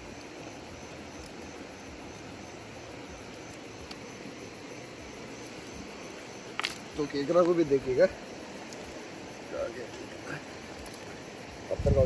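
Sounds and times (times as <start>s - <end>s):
faint ticks: 1.2s - 1.4s, 3.4s - 4.1s, 6.5s - 7.6s, 9.9s - 11.2s.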